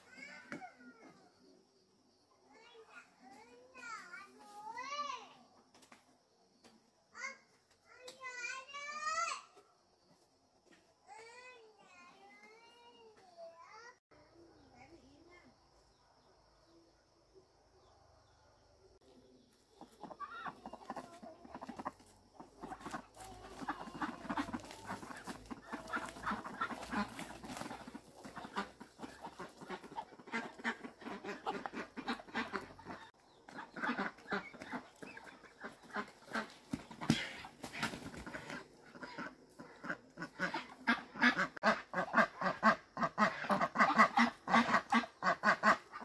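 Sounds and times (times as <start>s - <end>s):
fowl calling rapidly: 20.1s - 46.0s.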